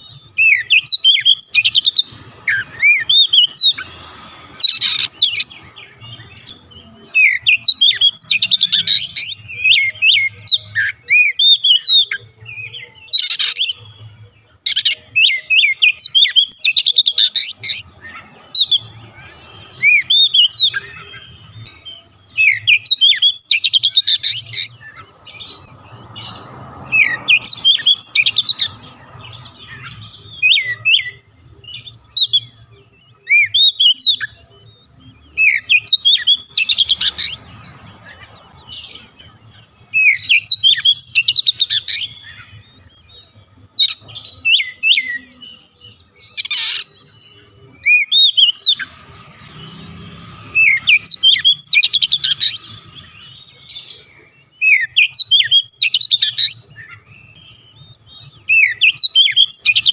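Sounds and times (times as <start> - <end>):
bird singing trills and whistles: 0.0 - 59.9.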